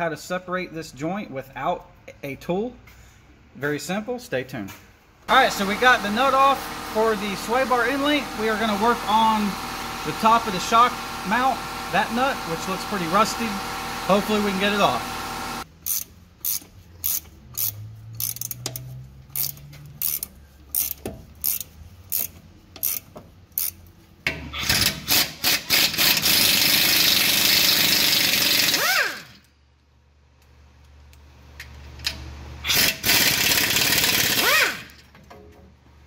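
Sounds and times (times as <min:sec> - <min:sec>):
power tool running on nuts: 0:05.3 - 0:18.4, 0:24.6 - 0:29.4, 0:32.7 - 0:35.0
ratchet clicking: 0:15.8 - 0:23.9, 0:24.6 - 0:29.5, 0:32.0 - 0:35.1.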